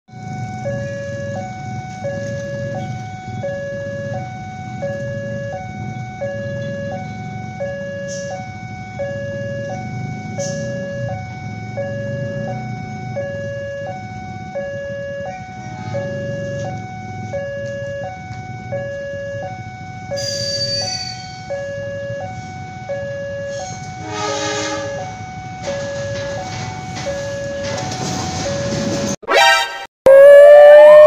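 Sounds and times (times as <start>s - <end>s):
two-tone siren: 0.1s - 31.0s
brief sharp high sounds: 29.3s - 31.0s.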